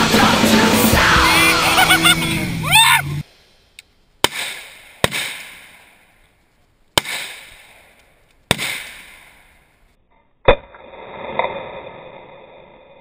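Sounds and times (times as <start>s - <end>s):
rifle shots echoing: 4.2s - 6.2s, 6.9s - 9.8s.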